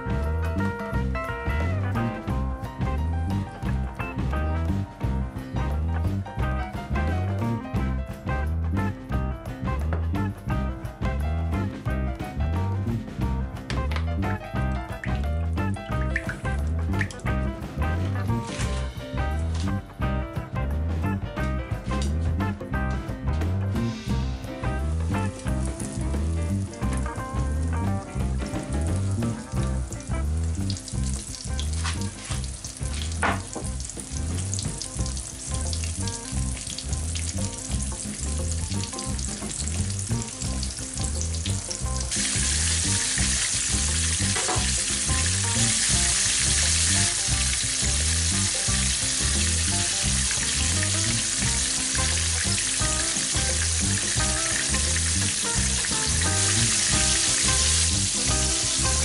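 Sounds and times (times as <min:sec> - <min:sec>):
oil popping: 0:13.6 - 0:19.8, 0:25.0 - 0:59.0
meat sizzling in hot oil: 0:14.5 - 0:19.8, 0:24.0 - 0:59.0.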